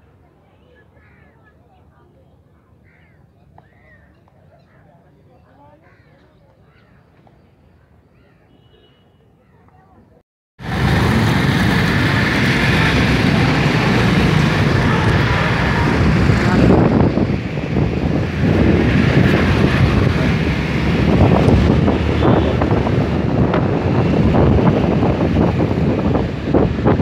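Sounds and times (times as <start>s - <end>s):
road and engine noise: 0.0s - 27.0s
wind buffeting microphone: 10.6s - 27.0s.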